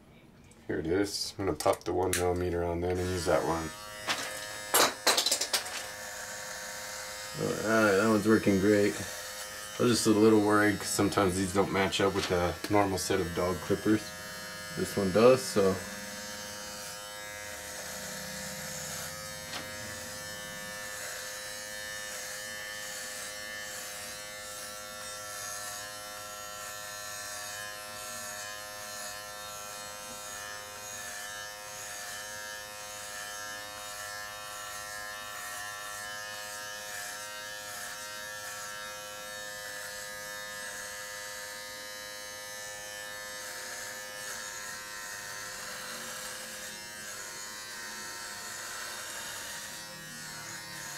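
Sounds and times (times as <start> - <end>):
hair trimmer buzzing: 2.2 - 50.9.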